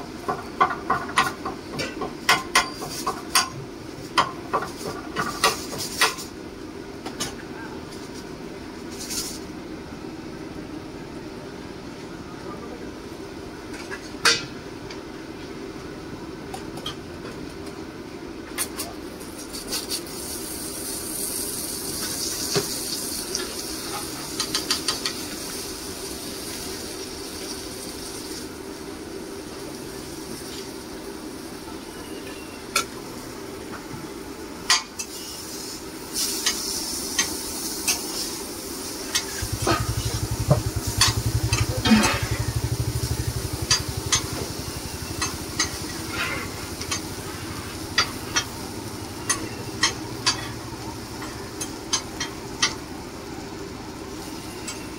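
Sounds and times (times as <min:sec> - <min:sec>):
batter sizzling on griddle: 0:00.1 - 0:06.4, 0:18.6 - 0:53.2.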